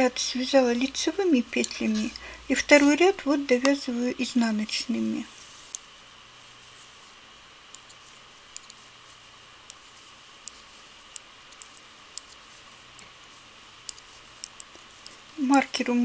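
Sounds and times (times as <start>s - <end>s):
knitting needles clicking: 8.5s - 8.8s, 10.4s - 13.1s, 13.8s - 15.2s.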